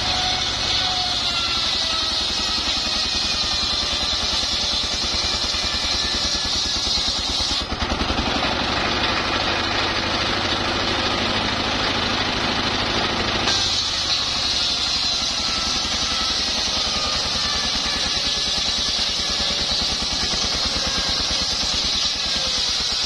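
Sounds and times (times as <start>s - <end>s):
circular saw cutting wood: 0.0s - 23.0s
diesel engine running: 7.0s - 23.0s.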